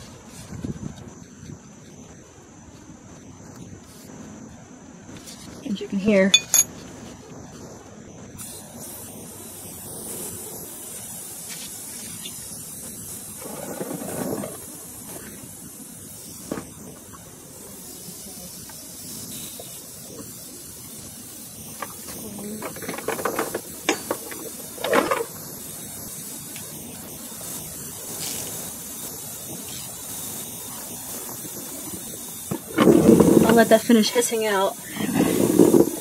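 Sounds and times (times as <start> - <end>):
tools knocking and clattering: 6.3 - 6.8, 22.6 - 25.3
refrigerant hissing from fitting: 7.6 - 36.0.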